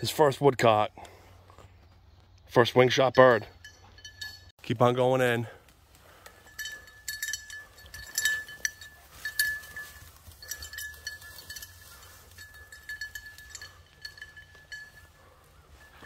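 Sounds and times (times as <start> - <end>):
dog collar bell jingling: 3.2 - 4.6, 6.1 - 16.0.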